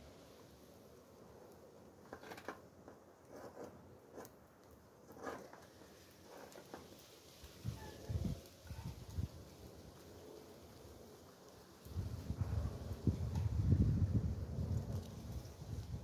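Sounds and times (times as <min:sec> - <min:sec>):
pan set on grill: 0:00.0 - 0:10.3
wood fire clicks: 0:01.4 - 0:09.7.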